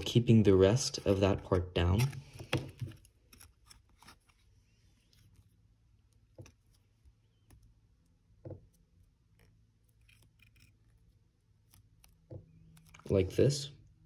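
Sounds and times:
paper and tweezers clicking: 0:08.7 - 0:13.1.

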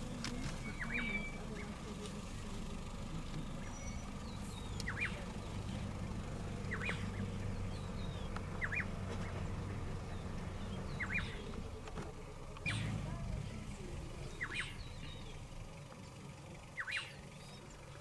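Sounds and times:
bird calling sharp notes: 0:06.7 - 0:08.9, 0:16.8 - 0:17.7.

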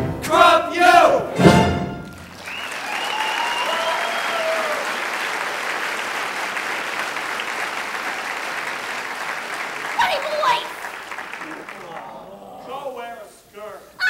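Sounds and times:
audience applauding: 0:01.6 - 0:12.5.

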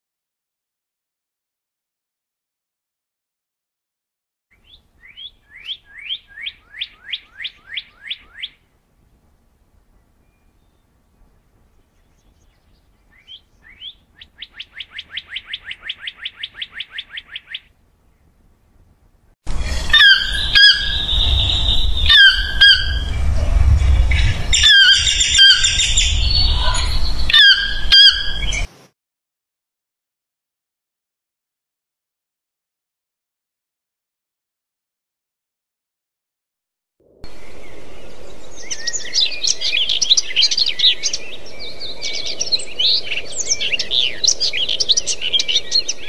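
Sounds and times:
bird singing upward whistles: 0:04.6 - 0:08.6, 0:12.2 - 0:17.7, 0:19.9 - 0:23.2, 0:24.1 - 0:28.7, 0:37.3 - 0:46.0
wind rumble on microphone: 0:17.9 - 0:28.7, 0:37.1 - 0:46.0
bird high squeaky calls: 0:19.7 - 0:23.2, 0:24.1 - 0:28.7.

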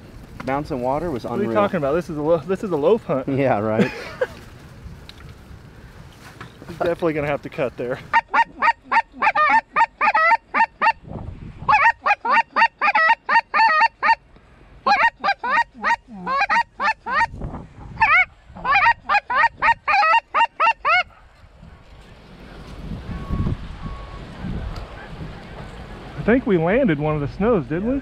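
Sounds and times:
goose call yelping honks: 0:08.1 - 0:11.0, 0:11.7 - 0:14.2, 0:14.8 - 0:17.3, 0:18.0 - 0:21.1.

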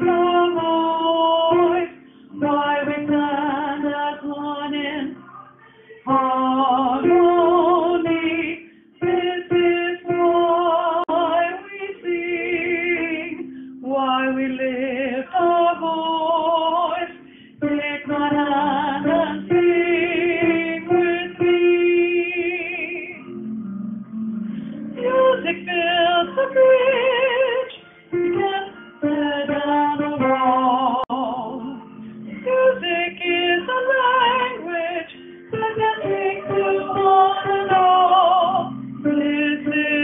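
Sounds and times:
person singing with vibrato: 0:00.0 - 0:23.4, 0:24.9 - 0:40.0
musical accompaniment: 0:00.0 - 0:40.0.

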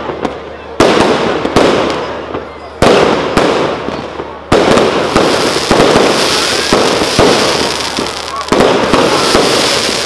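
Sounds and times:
fireworks bursting: 0:00.0 - 0:10.0.

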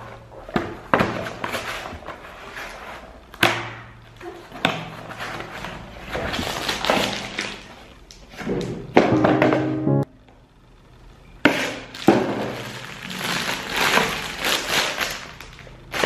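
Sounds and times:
rustle of cardboard and plastic: 0:00.0 - 0:03.2, 0:04.2 - 0:08.8, 0:11.5 - 0:16.0.

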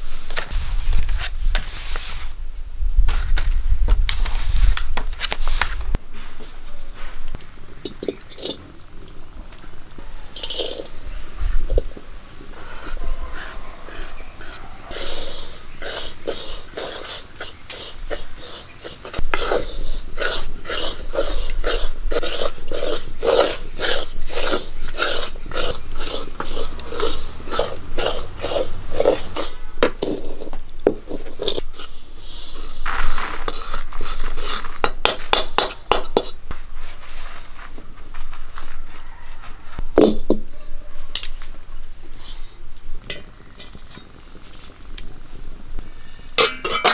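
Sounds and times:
spatula scraping metal wok: 0:10.3 - 0:11.9, 0:12.5 - 0:36.9, 0:46.0 - 0:46.9.

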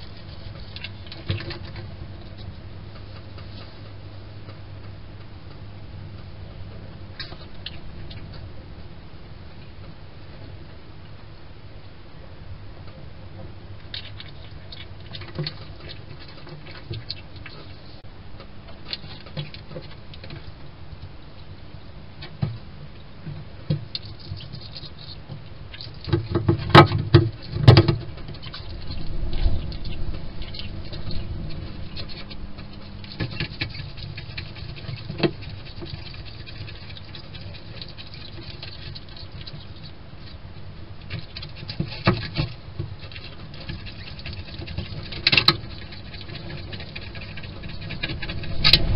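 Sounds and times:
hedgehog scratching on wood: 0:23.9 - 0:40.4, 0:41.0 - 0:48.9.

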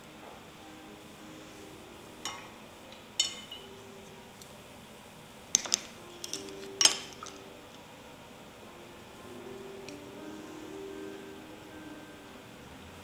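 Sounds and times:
ceramic dishes clinking: 0:02.2 - 0:03.8, 0:05.6 - 0:07.5.

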